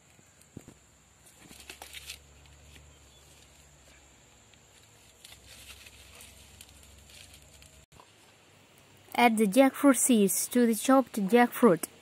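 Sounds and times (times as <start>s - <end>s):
fire crackling and rustling: 4.4s - 7.9s.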